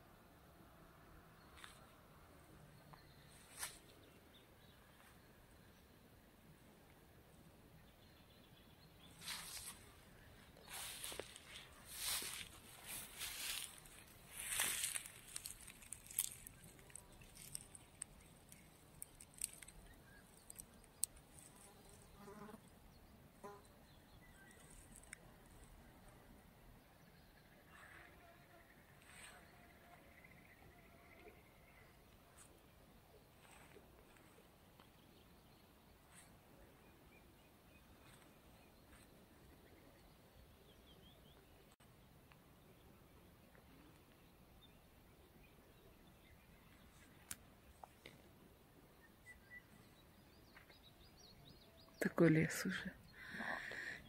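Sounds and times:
faint bird chirps: 0:42.7 - 0:54.0.

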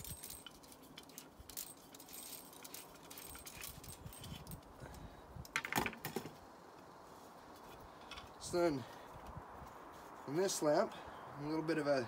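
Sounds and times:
small metal parts clinking: 0:00.0 - 0:06.3.

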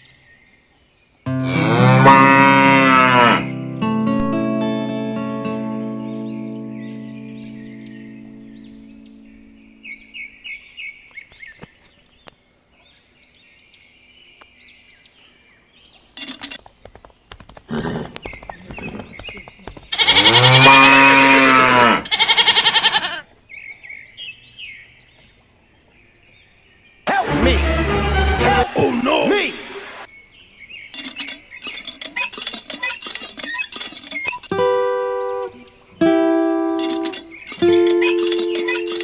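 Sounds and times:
sheep bleating: 0:01.3 - 0:03.6, 0:19.9 - 0:23.2
birds chirping: 0:02.1 - 0:39.0.

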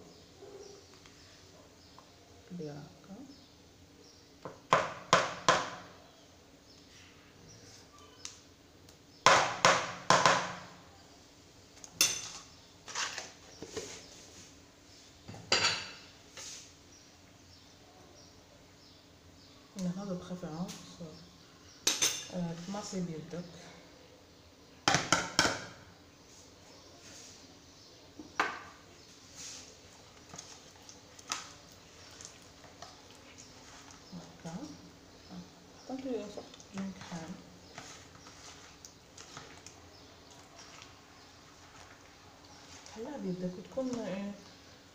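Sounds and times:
butter squelching by hand: 0:29.7 - 0:34.4, 0:36.2 - 0:42.9.

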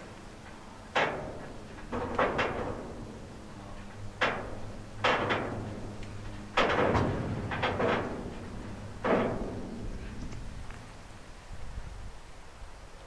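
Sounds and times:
metallic clanks of freight wagons: 0:00.0 - 0:11.2.

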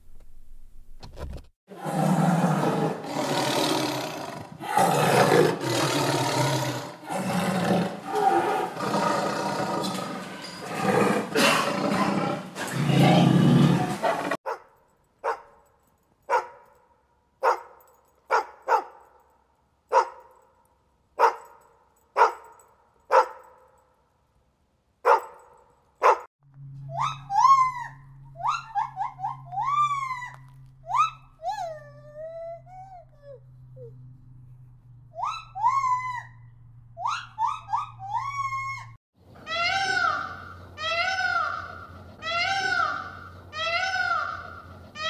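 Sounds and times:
tiger growling: 0:01.7 - 0:14.4
dog barking: 0:14.0 - 0:15.6, 0:16.3 - 0:16.7, 0:17.4 - 0:19.1, 0:19.9 - 0:20.4, 0:21.2 - 0:21.6, 0:22.2 - 0:23.7, 0:25.0 - 0:26.3
monkey high rapid calls: 0:26.9 - 0:31.9, 0:37.0 - 0:45.0.

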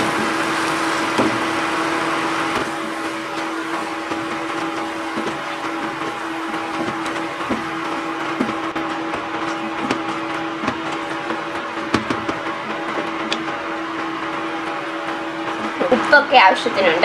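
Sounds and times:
fan-like hum: 0:00.0 - 0:17.0
wooden spoon knocking on pan: 0:10.6 - 0:10.9.

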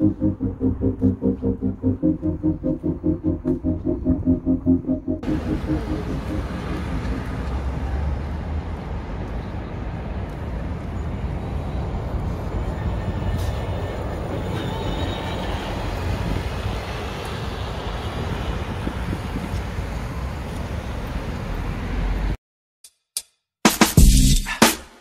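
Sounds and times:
city street traffic rumble: 0:00.0 - 0:22.4
truck tyre and road noise: 0:05.2 - 0:22.4.

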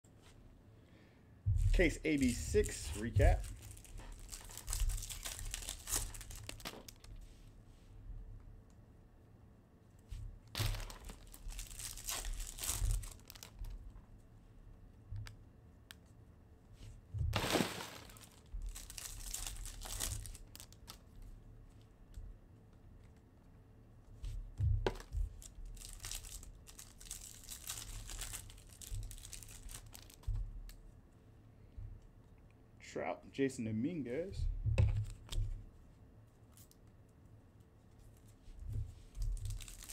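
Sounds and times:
foil wrappers crinkling and tearing: 0:01.6 - 0:07.2, 0:10.6 - 0:13.8, 0:17.4 - 0:21.0, 0:25.0 - 0:30.3, 0:39.3 - 0:39.9.

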